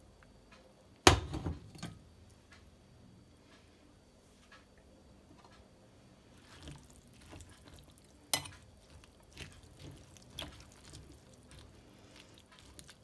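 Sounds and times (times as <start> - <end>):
metal spoon clinking in saucepan: 8.3 - 8.6.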